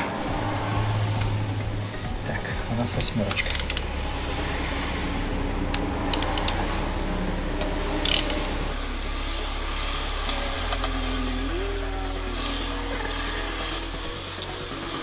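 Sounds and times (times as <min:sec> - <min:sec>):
wrench metallic clicks: 0:03.3 - 0:03.8, 0:08.0 - 0:08.4, 0:14.2 - 0:14.7.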